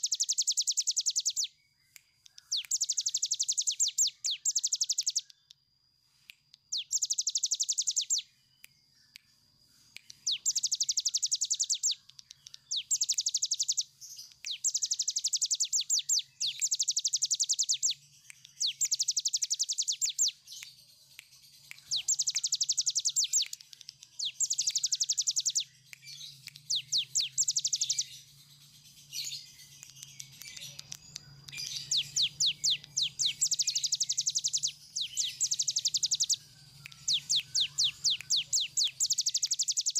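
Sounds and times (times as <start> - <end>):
bird singing fast rattling notes: 10.1 - 20.4, 21.9 - 25.7, 30.3 - 39.9.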